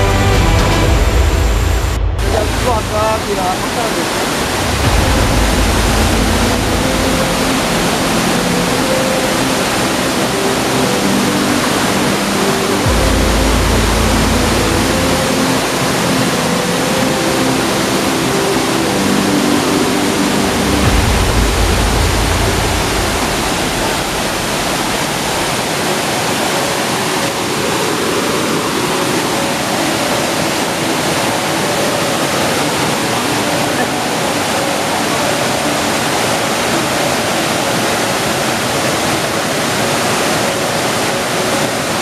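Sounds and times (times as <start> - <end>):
river rapids rushing over rocks: 2.2 - 42.0
low rumbles on microphone: 20.8 - 25.6.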